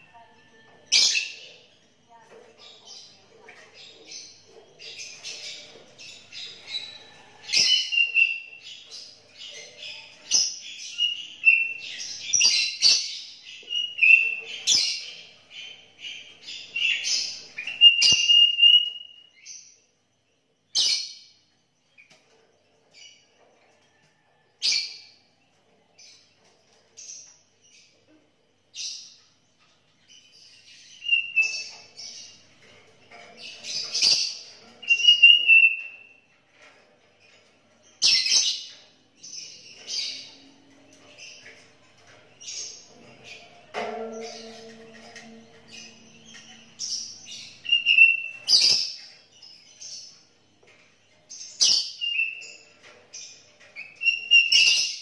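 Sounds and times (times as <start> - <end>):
bird chirping and whistling: 17.6 - 19.2, 34.8 - 36.0, 47.6 - 48.7.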